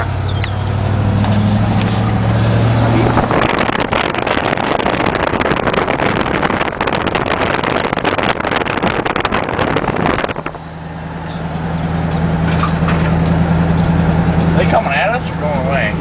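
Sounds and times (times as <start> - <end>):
road noise: 0.0 - 16.0
truck engine: 0.0 - 16.0
wind buffeting microphone: 0.2 - 12.9.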